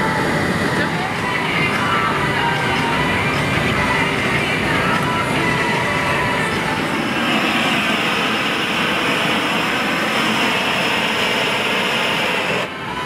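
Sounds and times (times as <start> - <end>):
gas burners hissing: 0.0 - 13.0
gas torch flame: 6.1 - 12.8.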